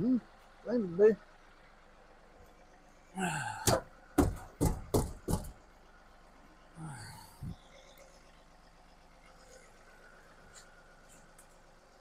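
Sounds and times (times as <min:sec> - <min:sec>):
person grunting: 0:03.2 - 0:03.8
knocks on metal cabinet: 0:03.6 - 0:05.6.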